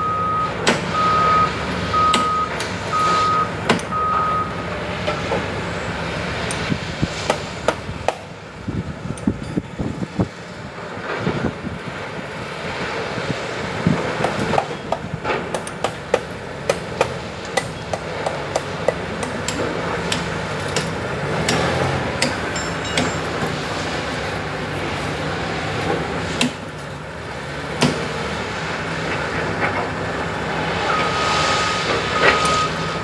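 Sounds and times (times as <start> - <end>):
excavator diesel engine running: 0.0 - 33.0
stone clanking against steel: 22.2 - 23.6.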